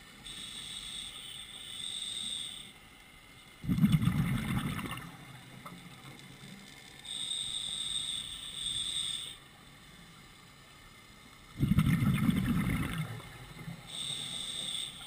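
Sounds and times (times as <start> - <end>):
regulator inhale hiss: 0.2 - 2.8, 7.1 - 9.4, 13.9 - 15.0
exhaled bubbles gushing: 3.6 - 5.4, 11.5 - 13.8.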